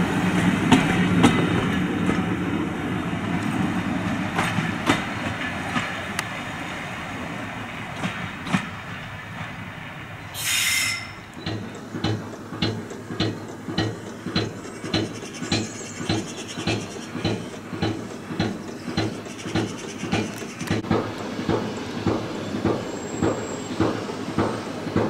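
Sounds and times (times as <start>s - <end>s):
steam locomotive exhaust beats: 7.6s - 25.0s.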